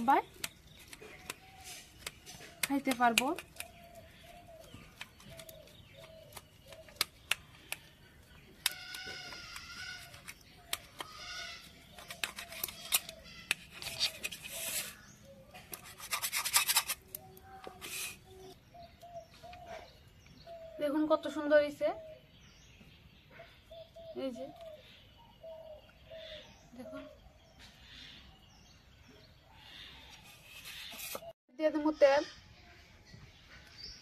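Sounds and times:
birds chirping: 0:00.0 - 0:34.0
knife scraping crisp crust: 0:08.6 - 0:18.3, 0:30.2 - 0:31.3.

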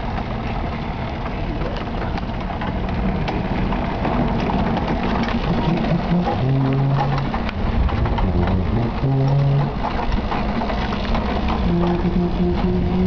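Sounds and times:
wind noise on microphone: 0:05.8 - 0:10.3.

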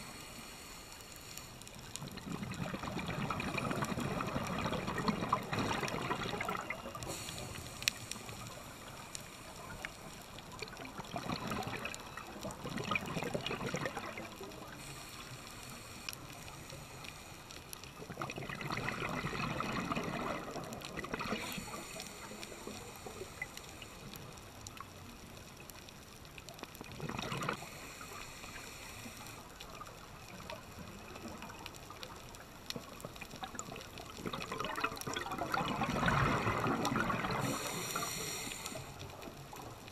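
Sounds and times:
regulator hiss: 0:00.0 - 0:01.8, 0:07.0 - 0:10.3, 0:14.7 - 0:17.7, 0:21.4 - 0:24.4, 0:27.6 - 0:29.6, 0:37.4 - 0:39.2
regulator exhale bubbling: 0:00.0 - 0:24.3, 0:26.8 - 0:29.9, 0:33.5 - 0:39.8
faint clicks: 0:00.0 - 0:39.9.

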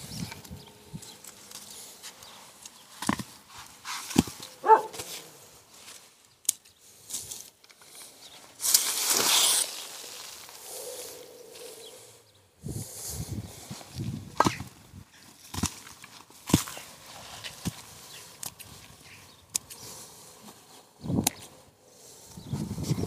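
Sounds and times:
fleece rustling: 0:01.2 - 0:06.2.

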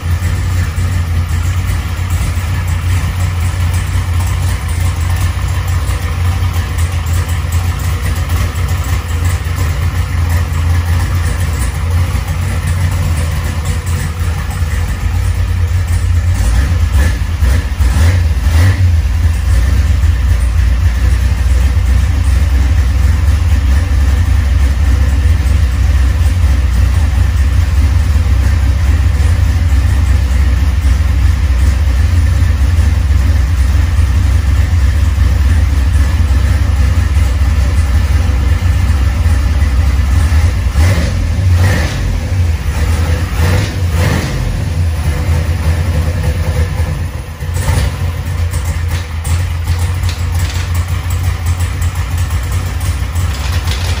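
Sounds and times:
car engine idling: 0:00.0 - 0:54.0.

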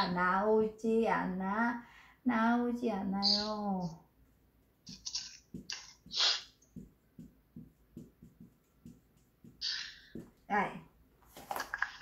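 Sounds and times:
marker pen writing on whiteboard: 0:04.6 - 0:10.6.

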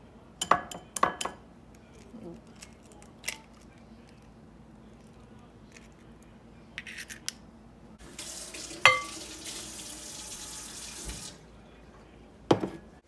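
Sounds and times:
glass bowls clinking: 0:08.8 - 0:09.2.

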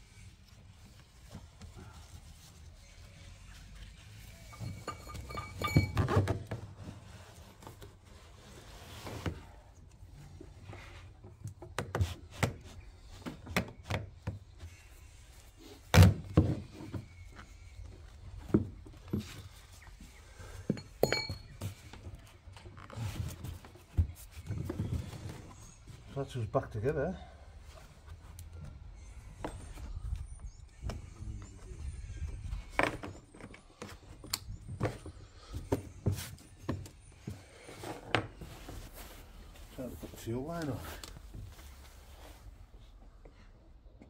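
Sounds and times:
ringing metal clinks: 0:04.4 - 0:06.3, 0:20.7 - 0:21.6.

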